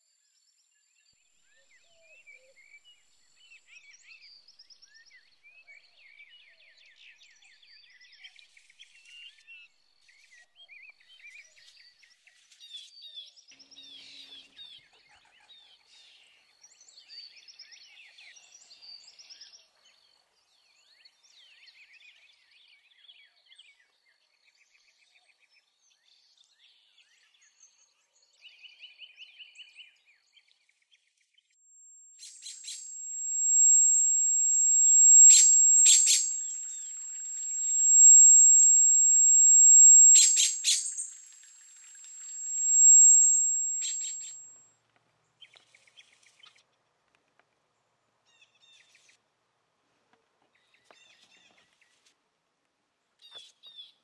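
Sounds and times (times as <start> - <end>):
high steady whine: 31.9 - 44.6
bird trill: 32.2 - 41.4, 42.0 - 44.5.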